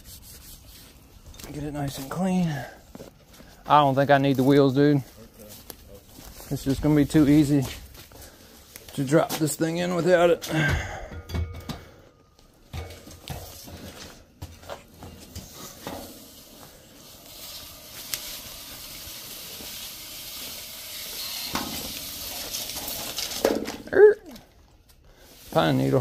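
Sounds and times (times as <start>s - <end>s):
pipe scraping over steel casing: 12.7s - 23.9s.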